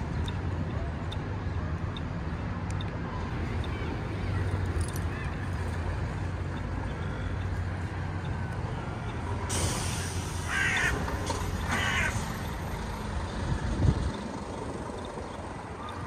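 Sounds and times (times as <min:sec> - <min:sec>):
street traffic rumble: 0:00.0 - 0:16.0
crow cawing: 0:10.5 - 0:11.0, 0:11.7 - 0:12.2.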